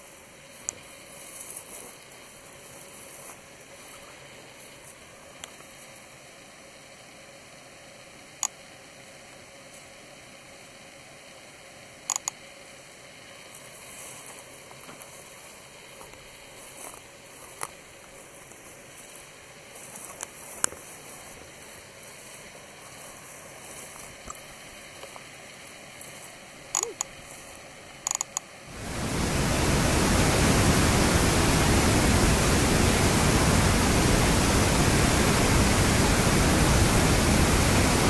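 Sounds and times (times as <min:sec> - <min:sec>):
faint steady hiss: 0:00.0 - 0:38.0
sharp clicks: 0:12.1 - 0:12.4, 0:28.0 - 0:28.5.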